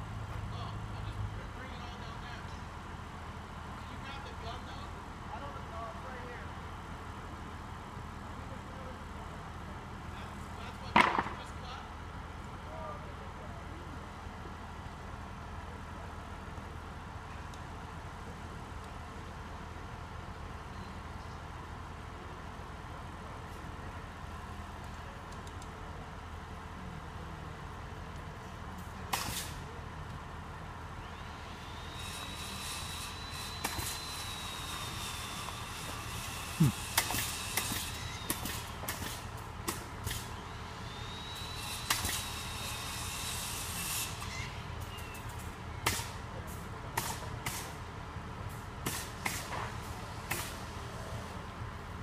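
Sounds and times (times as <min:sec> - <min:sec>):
diesel engine running: 0:11.8 - 0:52.0.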